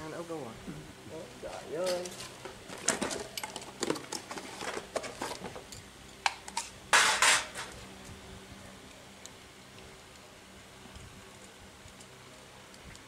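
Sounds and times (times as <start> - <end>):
metal hardware clinking and rattling: 2.8 - 7.8.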